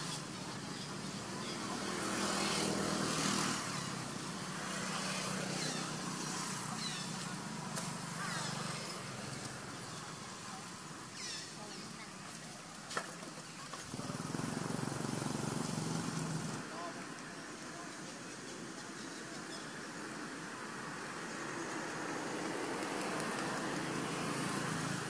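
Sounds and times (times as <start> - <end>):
people talking: 16.6 - 19.8.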